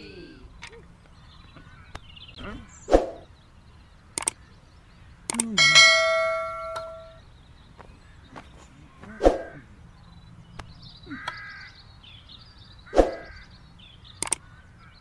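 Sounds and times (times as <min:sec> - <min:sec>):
crow cawing: 0:01.6 - 0:02.0, 0:11.0 - 0:13.6, 0:14.3 - 0:15.0
sharp clicks: 0:04.1 - 0:04.4, 0:05.2 - 0:05.6, 0:14.2 - 0:14.5.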